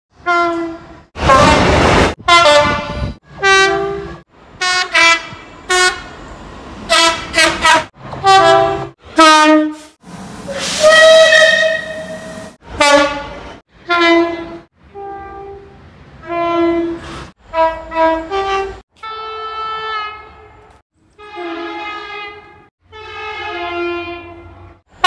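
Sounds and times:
train horn blasts: 0.1s - 6.2s, 6.9s - 10.0s, 10.6s - 25.0s
rushing noise: 1.2s - 3.4s.

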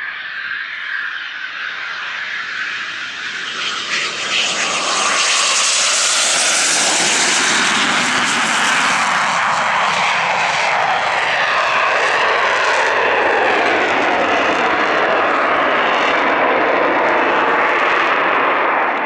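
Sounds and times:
jet roar: 0.0s - 19.0s.

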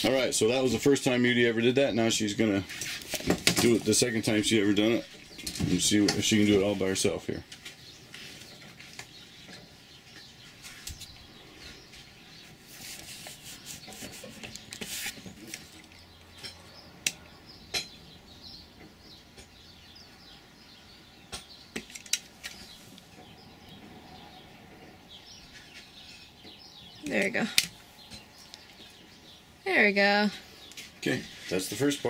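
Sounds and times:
blade scraping rubber cord: 12.6s - 16.1s.

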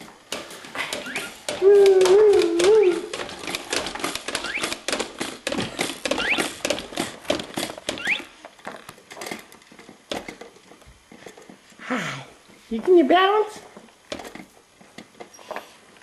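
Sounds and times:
plastic toys clicking and rattling: 0.0s - 11.6s
short rising squeaks: 0.9s - 1.5s, 4.3s - 4.8s, 6.0s - 6.6s, 7.9s - 8.3s.

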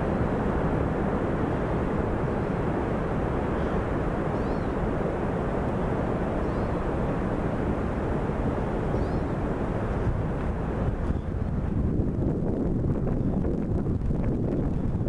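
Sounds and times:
river and waterfall roar: 0.0s - 11.9s.

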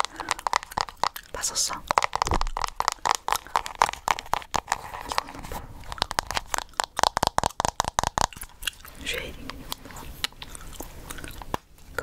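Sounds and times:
chewing gum clicks and crackles: 0.0s - 12.0s.

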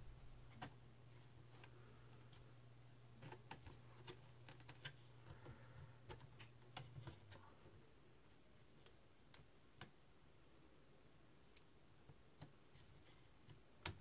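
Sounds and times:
faint clicks and taps on plastic: 0.5s - 0.8s, 3.2s - 7.8s, 8.8s - 10.0s, 11.5s - 14.0s.

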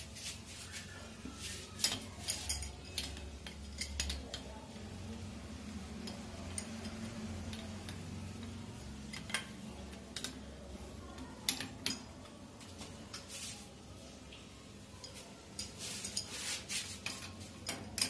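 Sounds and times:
metallic clicks and clinks: 1.8s - 4.5s, 6.0s - 10.5s.

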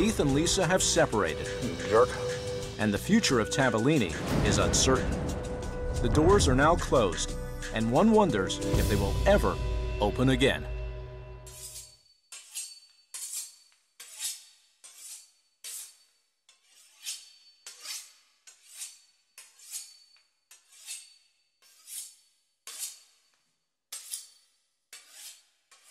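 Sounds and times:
knife sawing through crisp pastry: 11.7s - 23.2s, 24.0s - 25.9s.

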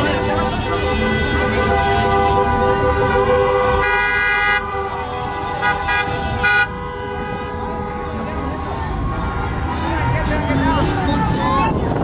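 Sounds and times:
bright horn long blast: 0.0s - 8.6s
car horns honking: 0.0s - 11.2s
low rumble of traffic: 0.0s - 12.0s
short horn toots: 0.5s - 8.3s.

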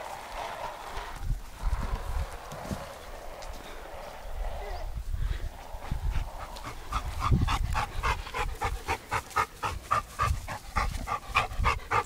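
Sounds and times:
dog panting hard: 5.8s - 12.0s.

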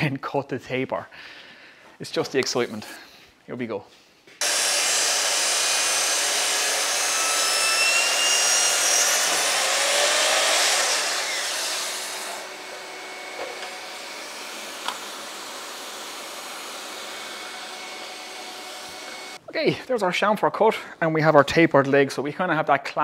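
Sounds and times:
dust extractor running: 4.4s - 19.4s
mitre saw cutting wood: 4.4s - 19.4s.

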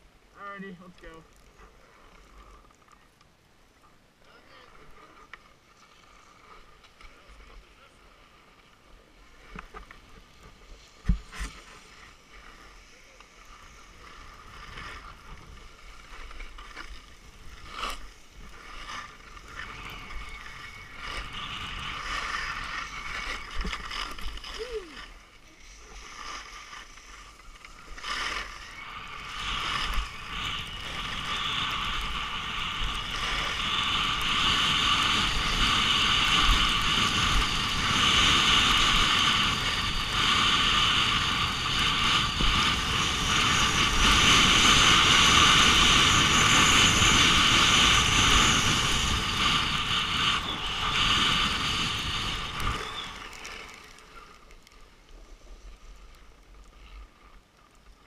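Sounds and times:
skis scraping over snow: 4.3s - 58.0s
wind rushing: 28.8s - 53.8s.

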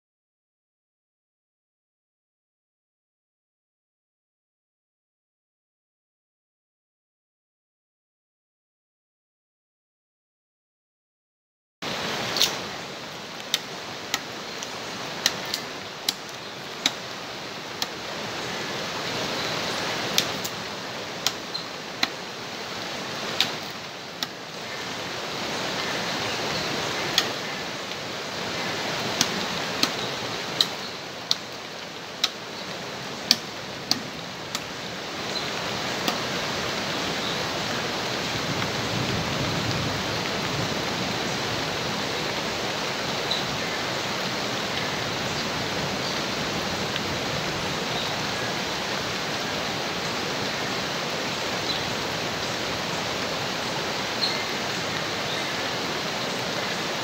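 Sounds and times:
flowing water rushing: 11.8s - 57.0s.

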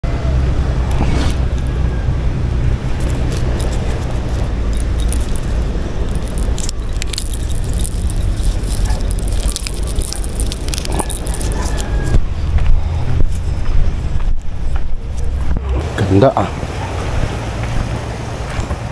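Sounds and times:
wind buffeting microphone: 0.0s - 18.9s
fishing tackle clicks and rattles: 2.9s - 12.1s.

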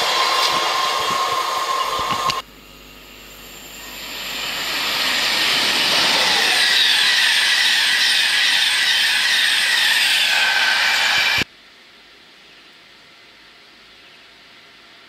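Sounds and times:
train wheels rushing on rail: 0.0s - 2.4s, 3.7s - 11.5s
faint high whine: 0.0s - 11.5s.

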